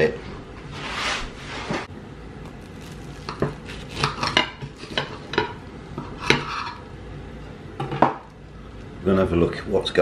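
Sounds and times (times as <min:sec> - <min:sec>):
knife rasping through toast crust: 0:02.4 - 0:05.3.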